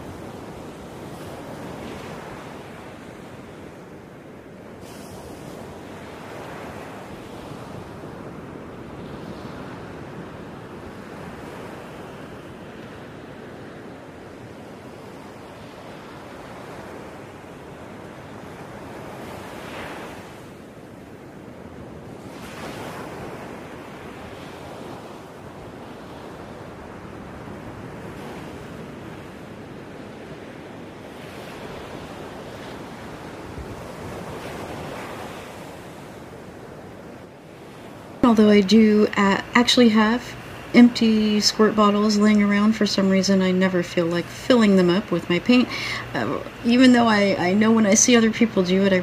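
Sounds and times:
steady rushing noise: 38.1s - 49.0s.

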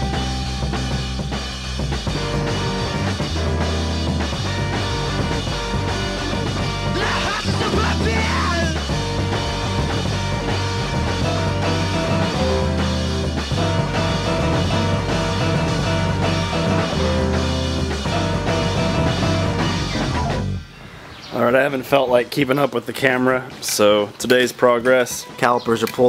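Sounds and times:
rock music with guitar and bass: 0.0s - 20.8s.

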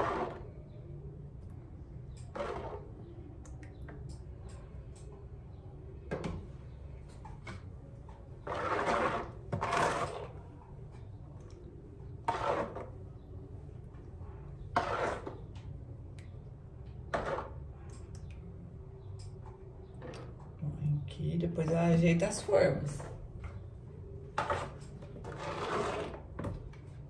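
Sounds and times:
ladle scooping and pouring liquid: 0.0s - 4.1s, 8.3s - 18.5s, 24.3s - 27.0s.

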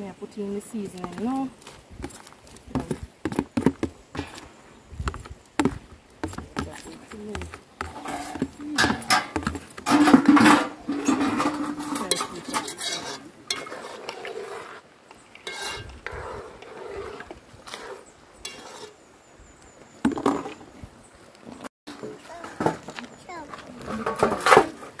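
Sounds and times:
spoon scraping in a pot: 7.4s - 19.1s
metal utensils clattering: 7.9s - 14.2s, 15.4s - 15.9s, 23.9s - 25.0s.

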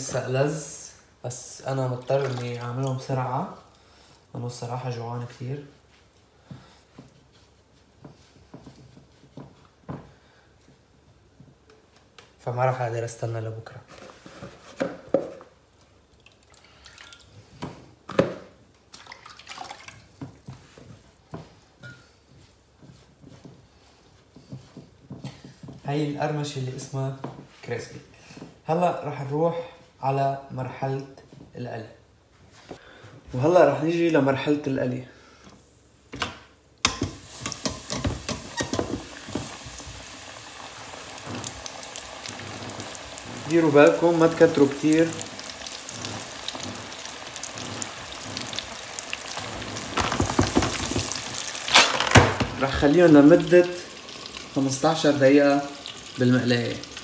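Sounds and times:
water drips and splashes: 1.8s - 3.2s, 16.1s - 17.4s, 18.9s - 20.2s
crackling sizzle with pops: 35.5s - 57.0s
chicken frying in hot oil: 37.1s - 57.0s.

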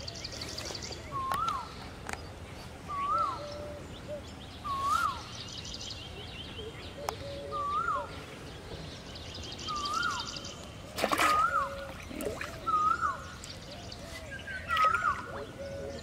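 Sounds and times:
bird calling: 0.0s - 1.8s, 2.9s - 8.3s, 9.6s - 16.0s
float and line splashing: 10.8s - 13.7s, 14.6s - 15.6s.

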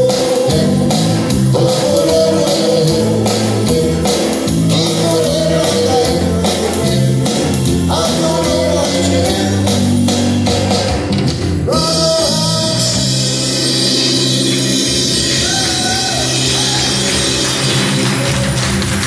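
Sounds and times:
voices singing along: 0.0s - 9.7s.

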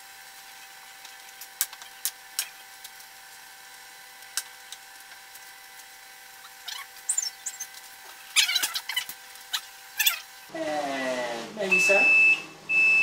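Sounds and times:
short high squeaks: 6.4s - 10.4s.

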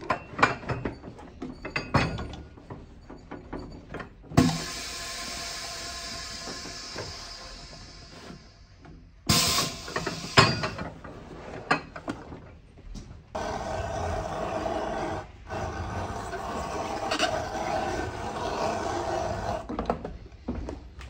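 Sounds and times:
press releasing burst of air: 4.4s - 10.8s
motorised trimming machine running: 13.4s - 19.6s.

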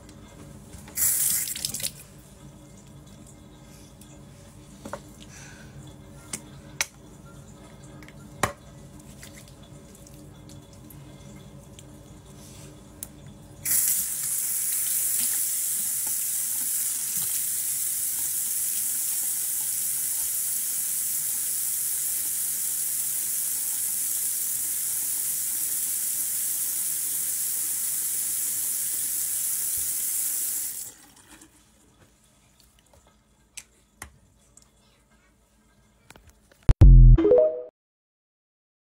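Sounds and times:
tap water running: 0.7s - 4.2s, 5.8s - 33.2s.

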